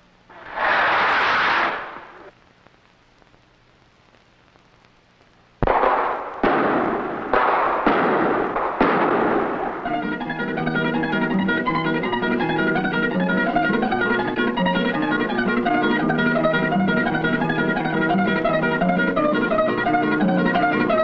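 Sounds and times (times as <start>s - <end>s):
sharp echoing bangs: 0.3s - 2.3s, 5.6s - 11.8s
signal rocket hissing: 0.3s - 2.4s
plucked guitar music: 9.8s - 21.0s.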